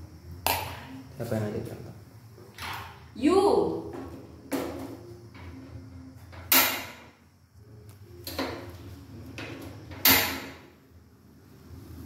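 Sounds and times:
sharp knocks at stove: 0:06.4 - 0:07.2, 0:09.4 - 0:10.7.

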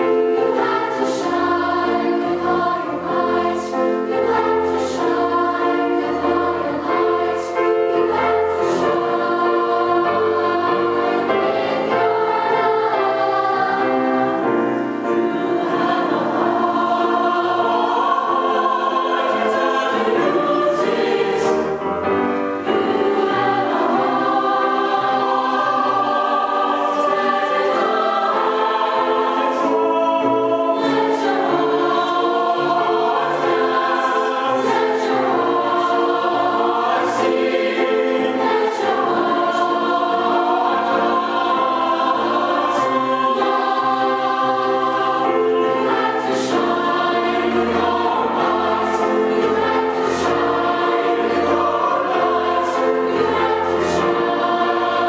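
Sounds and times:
choir singing: 0:00.0 - 0:55.0.

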